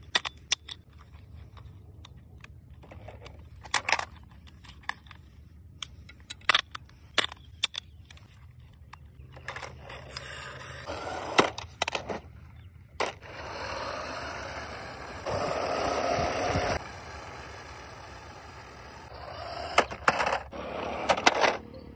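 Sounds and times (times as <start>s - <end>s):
toy cars whirring on asphalt: 9.2s - 12.2s, 13.0s - 21.9s.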